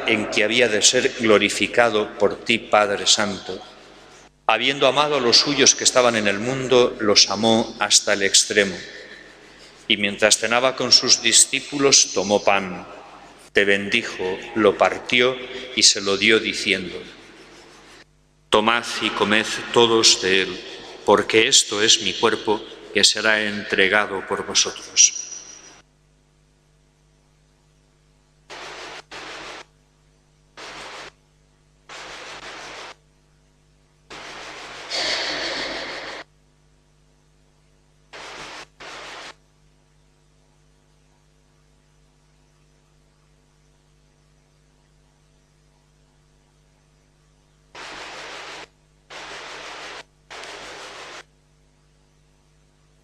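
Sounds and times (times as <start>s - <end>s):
electrical hum: 0.0s - 53.0s
bursts of hiss: 28.5s - 29.6s, 30.6s - 31.1s, 31.9s - 33.0s, 34.1s - 36.2s, 38.1s - 39.4s, 47.8s - 51.2s.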